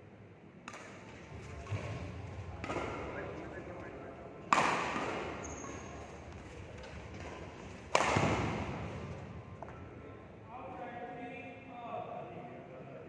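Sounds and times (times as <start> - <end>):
echo of large sports hall: 0.0 - 13.0
racket striking shuttlecock: 0.6 - 3.8, 4.4 - 9.8.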